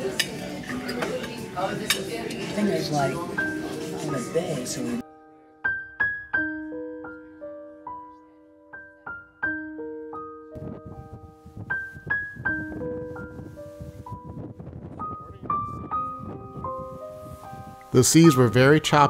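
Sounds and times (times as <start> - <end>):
slow solo piano: 5.0 - 18.0.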